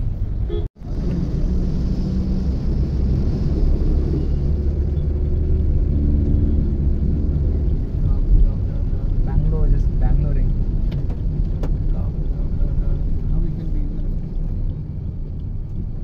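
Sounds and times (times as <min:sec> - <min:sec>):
car driving rumble: 0:00.0 - 0:16.0
tyres hissing on wet road: 0:00.8 - 0:04.7.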